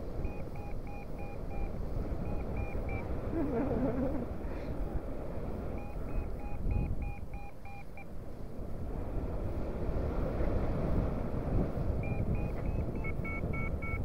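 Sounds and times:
wind rumbling on microphone: 0.0 - 7.5, 8.2 - 14.0
variometer beeping in short pips: 0.2 - 3.1, 5.8 - 8.1, 12.0 - 14.0.

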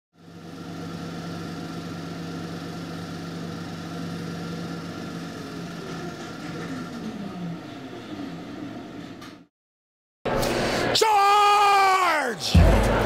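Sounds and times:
machinery hum: 0.2 - 9.5.

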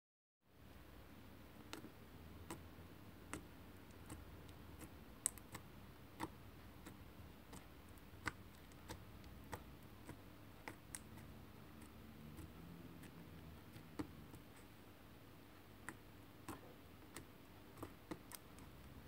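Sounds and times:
faint low hum: 0.5 - 19.0
slime clicking and popping: 2.4 - 14.4.

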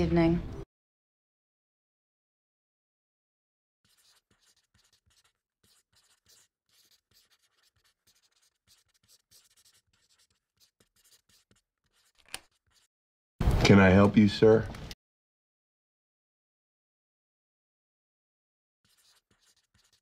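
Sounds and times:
pencil writing on paper: 3.8 - 12.9, 18.8 - 20.0.

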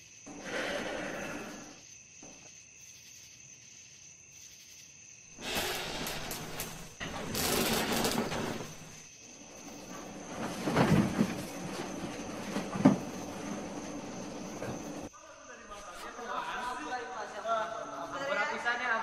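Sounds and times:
rustling and movement: 5.4 - 15.1.

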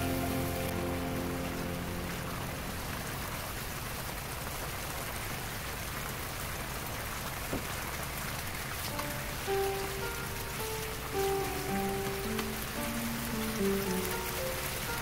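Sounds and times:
music: 0.0 - 3.0, 8.9 - 15.0
sauce bubbling and sizzling in pan: 0.0 - 15.0.

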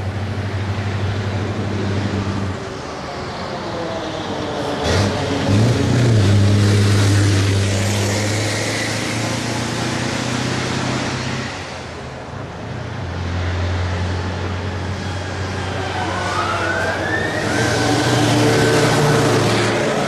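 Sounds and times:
heavy engine approaching: 0.0 - 20.0
truck diesel engine: 0.0 - 20.0
siren wailing: 15.6 - 20.0.

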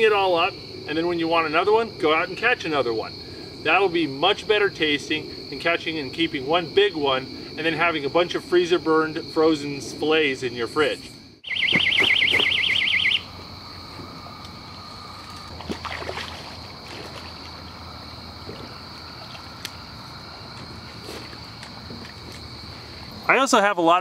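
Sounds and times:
night insects humming: 0.0 - 24.0
electronic alarm warbling beep: 11.4 - 13.4.

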